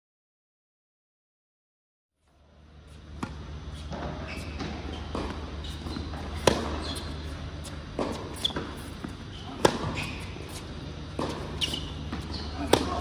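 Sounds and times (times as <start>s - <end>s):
tennis ball bouncing: 2.9s - 13.0s
rackets hitting tennis ball: 3.1s - 13.0s.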